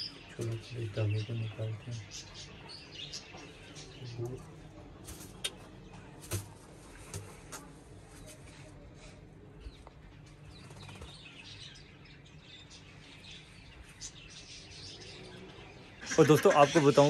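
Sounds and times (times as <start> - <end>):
small birds chirping: 0.0 - 17.0
clicks and rustles of handling: 5.0 - 8.7.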